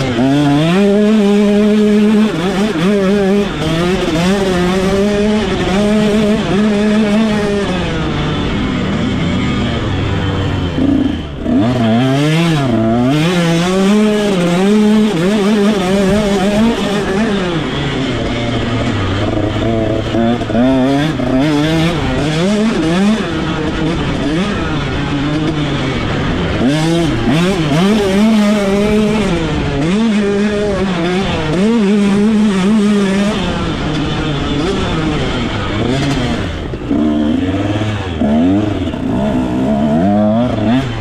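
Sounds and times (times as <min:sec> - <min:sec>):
motocross engine revving: 0:00.0 - 0:41.0.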